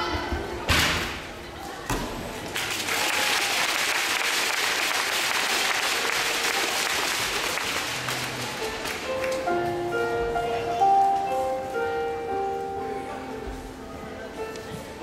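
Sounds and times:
audience applauding: 0:02.5 - 0:09.4
music with held notes: 0:05.7 - 0:15.0.

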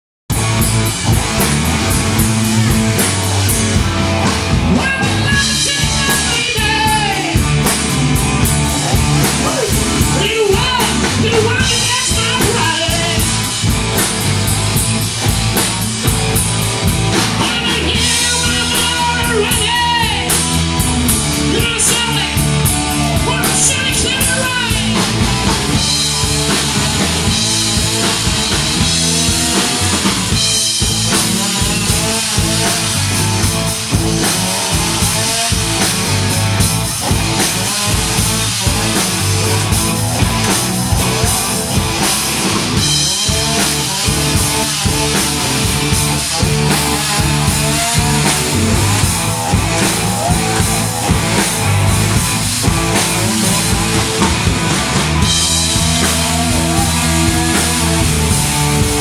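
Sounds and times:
bass guitar: 0:00.3 - 0:59.0
distorted electric guitars: 0:00.3 - 0:59.0
drum kit: 0:00.3 - 0:59.0
person singing: 0:04.7 - 0:07.5, 0:09.3 - 0:13.3, 0:55.7 - 0:59.0.

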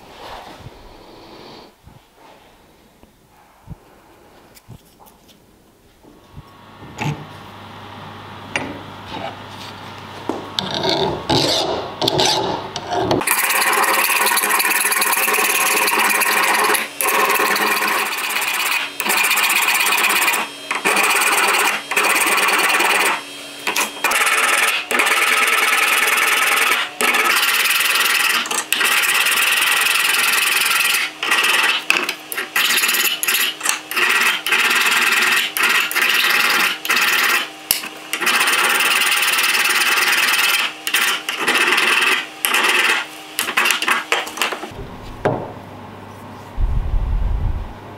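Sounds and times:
file rasping on steel: 0:10.6 - 0:44.2.

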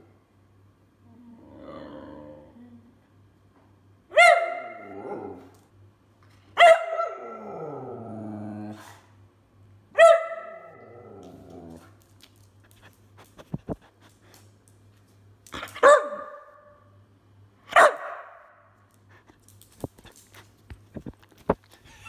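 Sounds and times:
dog whining and grumbling: 0:01.0 - 0:03.0
dog barking: 0:04.1 - 0:04.8, 0:06.6 - 0:07.2, 0:10.0 - 0:10.8, 0:15.8 - 0:16.8, 0:17.7 - 0:18.6.

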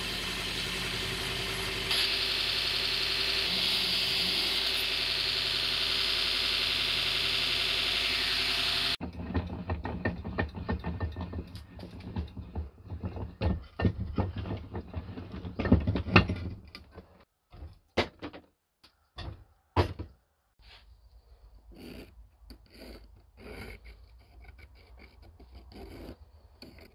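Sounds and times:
belt grinder running: 0:00.0 - 0:09.0.

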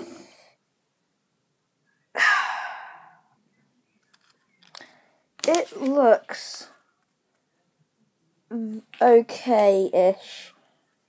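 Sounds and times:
person sighing: 0:02.2 - 0:03.3.

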